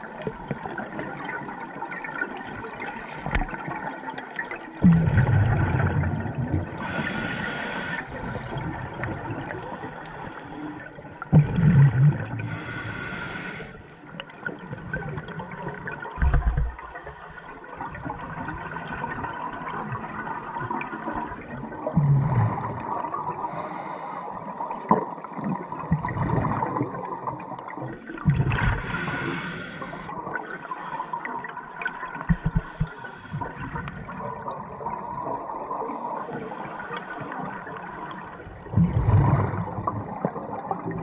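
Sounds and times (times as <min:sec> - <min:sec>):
exhaled bubbles underwater: 0:00.0 - 0:23.6, 0:24.3 - 0:41.0
regulator inhalation hiss: 0:06.8 - 0:08.5, 0:12.4 - 0:13.8, 0:28.8 - 0:31.1.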